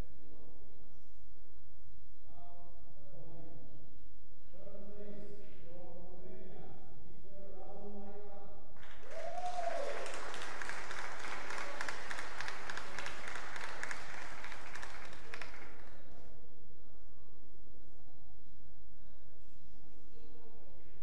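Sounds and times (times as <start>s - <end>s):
audience applauding: 8.8s - 16.2s
short shout: 9.1s - 10.2s.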